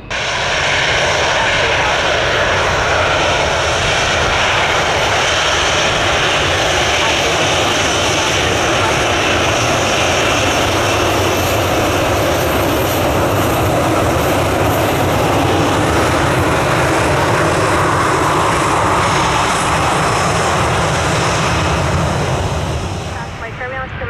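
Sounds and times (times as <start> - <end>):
high engine whine: 0.0 - 24.0
jet engines running: 0.0 - 24.0.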